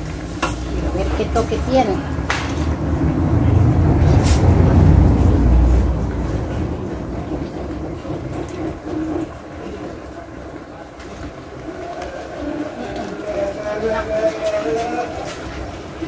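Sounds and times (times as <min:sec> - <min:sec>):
low rumble: 0:02.0 - 0:09.8.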